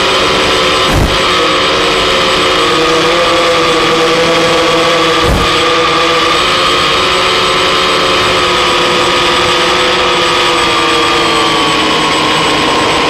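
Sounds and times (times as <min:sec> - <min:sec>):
drone propellers whirring: 0:00.0 - 0:13.0
brief knock: 0:05.2 - 0:05.6.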